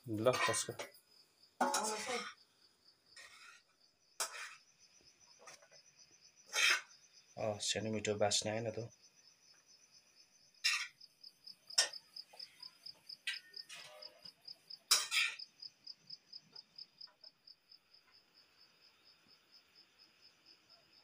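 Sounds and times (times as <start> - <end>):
cricket chirping: 0.0 - 21.0
spatula scraping a frying pan: 1.6 - 2.4, 3.2 - 4.7, 6.5 - 7.0, 10.6 - 11.0, 14.9 - 15.5.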